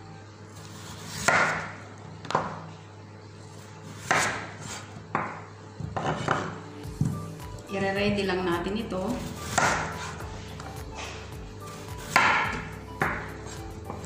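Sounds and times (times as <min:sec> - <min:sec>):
knife slicing potato on board: 0:00.6 - 0:01.7, 0:03.9 - 0:06.6, 0:09.2 - 0:11.1, 0:11.7 - 0:14.0.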